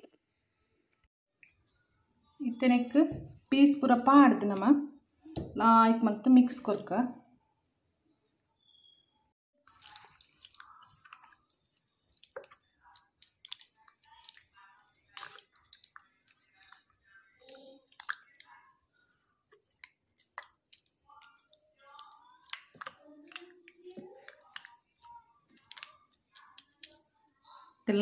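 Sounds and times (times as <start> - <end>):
wet squelching of chicken mixing: 9.6 - 27.8.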